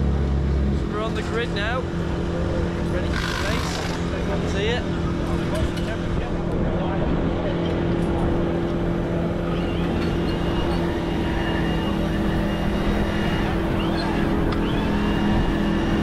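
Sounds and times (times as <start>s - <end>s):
motorcycle engines droning: 0.0s - 16.0s.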